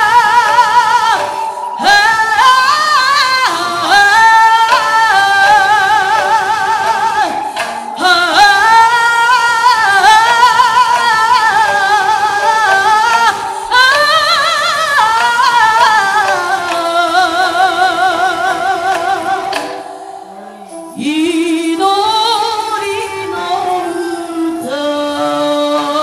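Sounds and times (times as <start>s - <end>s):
person singing with vibrato: 0.0s - 26.0s
singer breathing: 13.4s - 13.7s, 19.7s - 20.9s.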